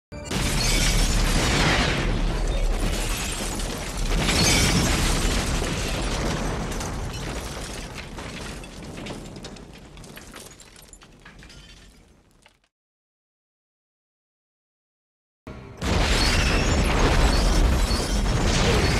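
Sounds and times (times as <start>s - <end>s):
big explosion blast: 0.3s - 9.2s, 15.8s - 18.9s
explosion crackles: 0.3s - 11.4s, 15.8s - 18.9s.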